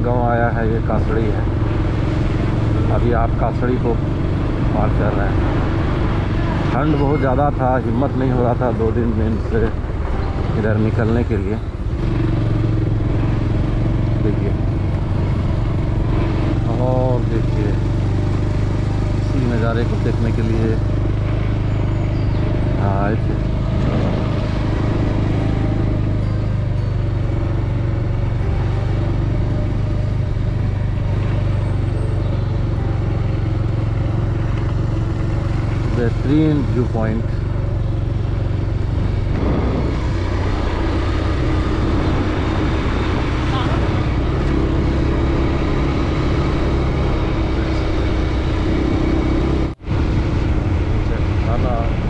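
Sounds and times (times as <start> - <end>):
motorcycle engine running: 0.0 - 52.0
wind noise rushing: 39.0 - 41.0.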